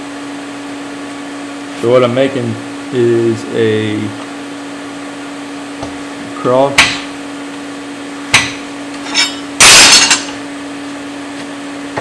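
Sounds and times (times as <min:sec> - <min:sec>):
steady hum: 0:00.0 - 0:12.0
steel bars clanking: 0:08.4 - 0:10.4.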